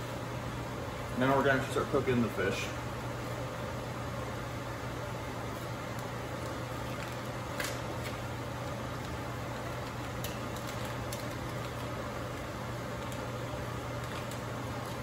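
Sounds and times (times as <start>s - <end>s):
stove fan humming with hiss: 0.0s - 15.0s
plastic bag crinkling: 9.5s - 15.0s.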